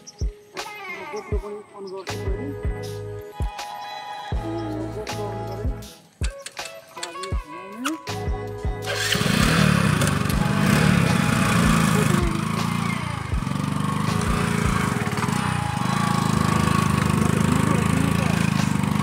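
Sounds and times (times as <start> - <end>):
background music: 0.0 - 19.0
motorcycle engine running: 8.2 - 19.0.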